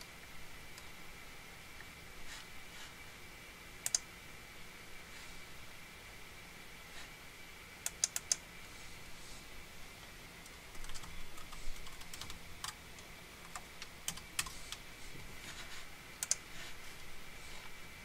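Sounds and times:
faint high-pitched whine: 0.0 - 18.0
typing on computer keyboard: 7.9 - 8.4, 10.7 - 12.8, 16.2 - 16.4.

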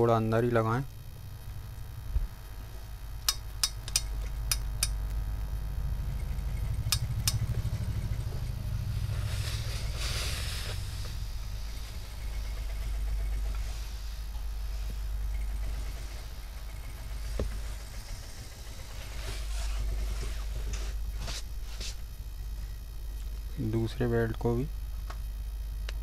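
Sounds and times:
low machine hum: 0.0 - 26.0
steam iron hissing: 6.3 - 22.1.

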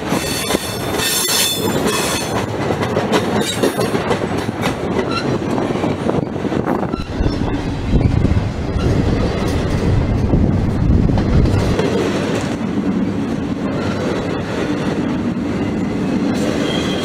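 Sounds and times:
deep low train rumble: 0.0 - 17.0
train wheels clattering over rail joints: 0.0 - 17.0
high wheel squeal: 6.8 - 9.0, 16.5 - 17.0.

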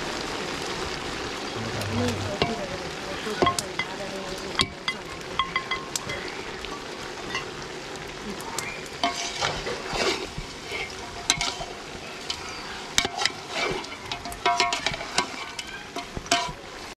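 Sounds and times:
curry sizzling: 0.0 - 16.9
metal spoon clinking pot: 14.1 - 16.6.

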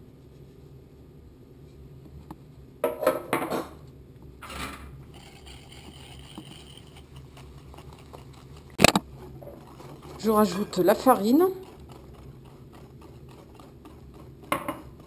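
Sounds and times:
wire whisk scraping bowl: 5.1 - 15.0.

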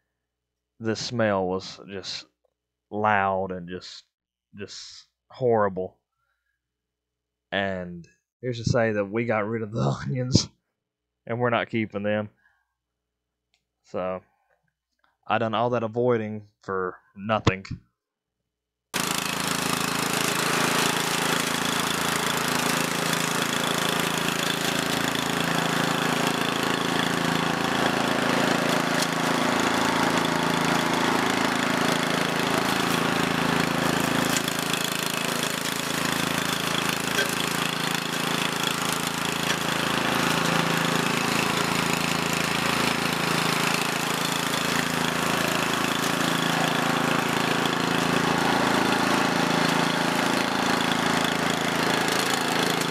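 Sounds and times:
brush mower engine running: 19.0 - 52.9.

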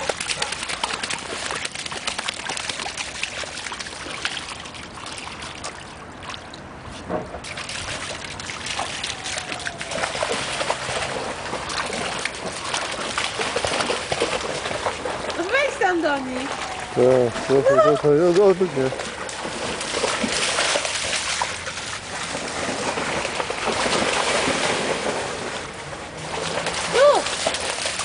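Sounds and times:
dogs splashing through water: 0.0 - 28.0
flowing water rushing: 7.4 - 28.0.

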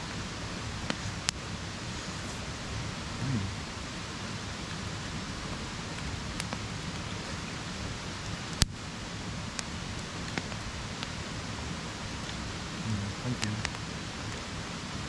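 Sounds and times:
water hissing: 0.0 - 15.0.

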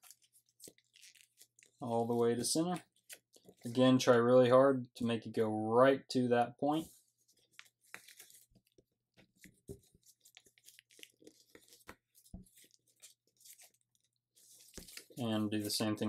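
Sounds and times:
paper crinkling: 0.0 - 2.1, 7.1 - 16.0.

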